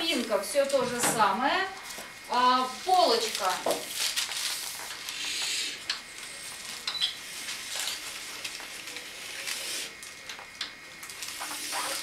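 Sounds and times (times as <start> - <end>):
paper rustling: 1.8 - 5.5, 6.2 - 10.4.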